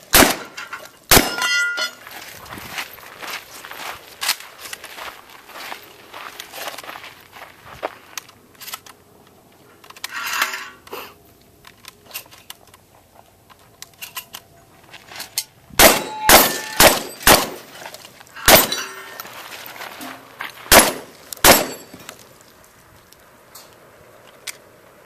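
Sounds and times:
shotgun blasts: 0.1 - 1.5, 15.8 - 17.7, 18.5 - 18.9, 20.7 - 21.9
steel target ringing clang: 0.2 - 2.0, 15.8 - 17.7, 18.4 - 19.2, 20.8 - 22.1
shotgun loading clicks: 8.2 - 10.2, 10.8 - 14.5, 23.1 - 24.7.

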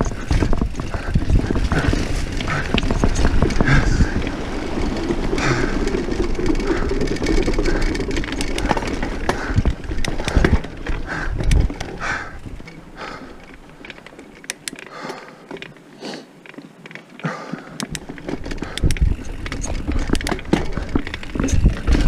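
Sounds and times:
wind on microphone: 0.0 - 6.0
bike chain and frame rattling: 0.0 - 22.0
bike tyre rumble: 0.0 - 22.0.

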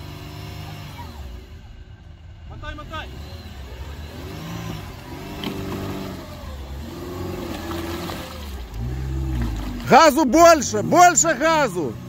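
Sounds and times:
engine working hard: 0.0 - 12.0
wheels spinning in mud: 3.2 - 12.0.

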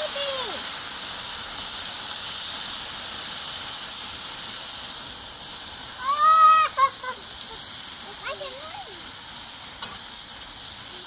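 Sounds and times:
food sizzling on a griddle: 0.0 - 11.0
child crying out: 6.0 - 7.6.

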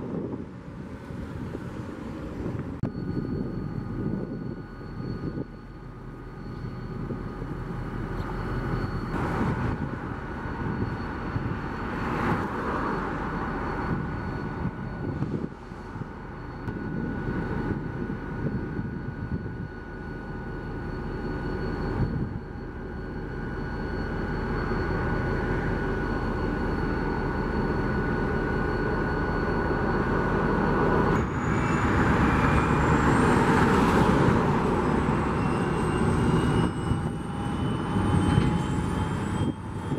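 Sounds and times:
diesel locomotive engine running: 0.0 - 39.9
passing road traffic: 7.4 - 18.4, 29.6 - 39.9.

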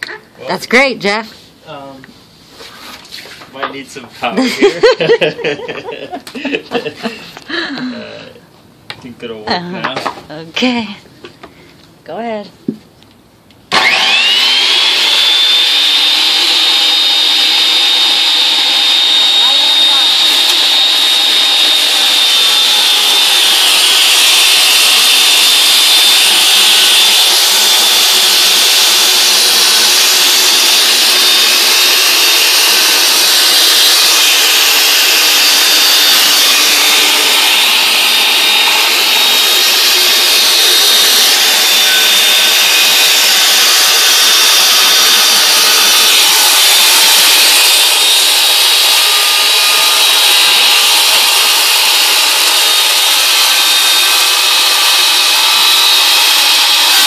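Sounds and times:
circular saw cutting wood: 13.7 - 57.0.

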